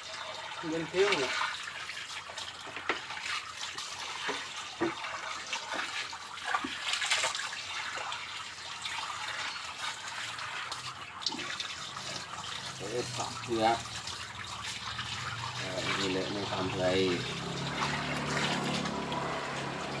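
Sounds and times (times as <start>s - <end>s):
water running and splashing: 0.0s - 20.0s.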